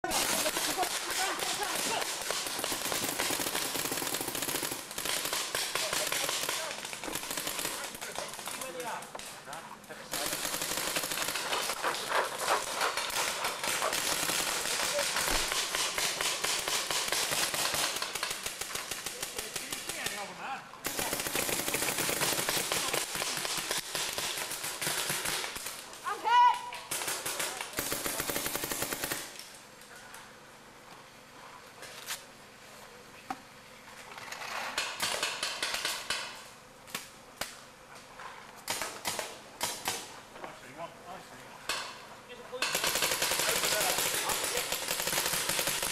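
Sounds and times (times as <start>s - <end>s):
paintball markers firing: 0.0s - 9.0s, 10.1s - 25.8s, 34.8s - 36.4s, 38.6s - 40.1s, 42.6s - 45.9s.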